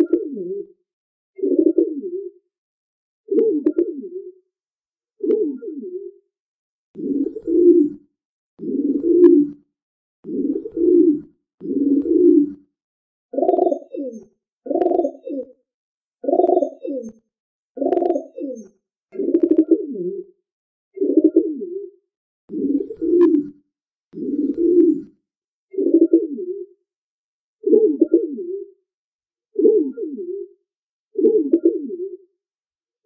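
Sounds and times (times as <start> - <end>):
pigeon cooing: 7.0 - 8.0, 10.3 - 12.6, 13.4 - 15.6, 16.2 - 17.2, 17.8 - 19.9, 24.2 - 25.1.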